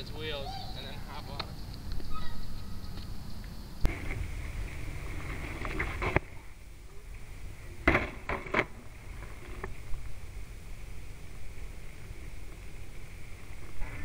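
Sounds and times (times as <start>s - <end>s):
wheels rolling on pavement: 0.0s - 14.0s
longboard clacks and thuds: 7.8s - 9.7s.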